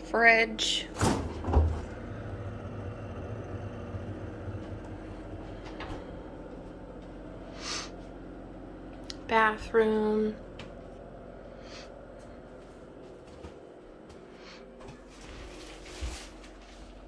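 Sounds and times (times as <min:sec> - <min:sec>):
refrigerator door seal thump: 0:01.0 - 0:01.9
low rumble of handling noise: 0:01.3 - 0:17.0.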